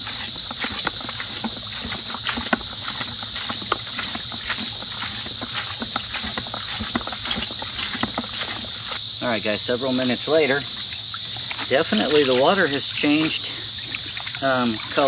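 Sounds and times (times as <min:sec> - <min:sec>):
plunger knocking in bucket: 0:00.0 - 0:09.0
insects chirring: 0:00.0 - 0:15.0.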